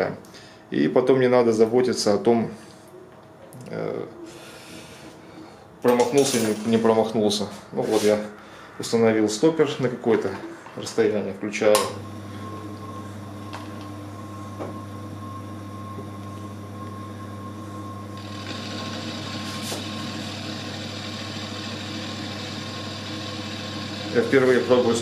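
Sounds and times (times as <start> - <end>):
milling machine motor hum: 11.8 - 25.0
end mill cutting hiss: 18.2 - 20.5.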